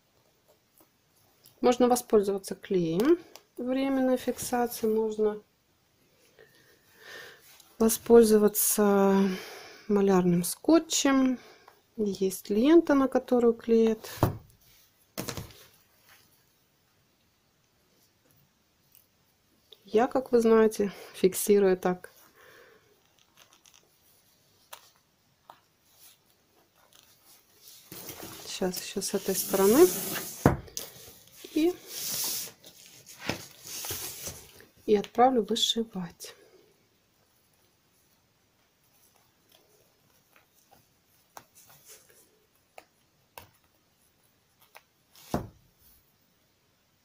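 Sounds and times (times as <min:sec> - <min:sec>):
faint fabric rustling: 0:13.9 - 0:16.9, 0:21.8 - 0:46.2
thump on table: 0:14.2 - 0:14.5, 0:30.4 - 0:30.7, 0:45.3 - 0:45.6
fabric rustling: 0:23.0 - 0:34.8.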